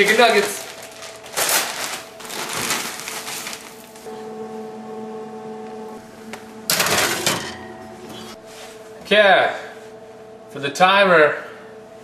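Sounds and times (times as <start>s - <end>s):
plastic bag crinkling: 0.0s - 4.1s
steady hum: 0.0s - 12.0s.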